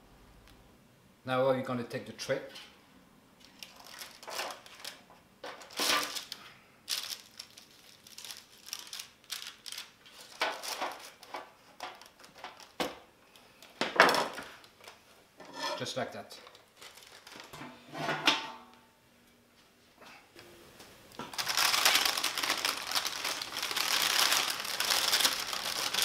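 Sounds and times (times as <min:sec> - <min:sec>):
parchment paper crinkling: 0:03.4 - 0:13.6, 0:16.4 - 0:17.5, 0:21.2 - 0:26.0
metal trays scraping and knocking: 0:15.4 - 0:15.8, 0:17.5 - 0:18.7.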